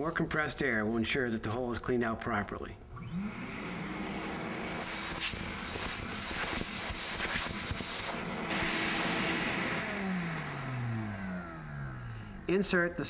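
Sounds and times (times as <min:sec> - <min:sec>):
vacuum cleaner motor running: 0:02.9 - 0:12.6
air hissing through nozzle: 0:04.8 - 0:09.1.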